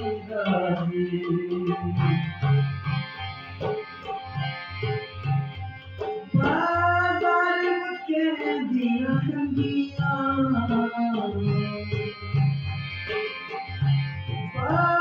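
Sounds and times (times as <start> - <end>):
man singing: 0.0 - 2.6, 6.3 - 12.6, 14.5 - 15.0
tabla strokes: 0.0 - 7.7
harmonium chords: 0.0 - 15.0.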